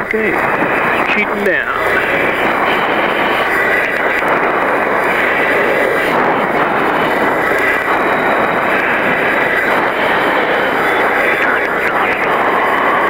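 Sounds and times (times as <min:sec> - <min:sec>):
jet engine and airflow rushing: 0:00.0 - 0:13.0
thin steady whine: 0:00.0 - 0:13.0.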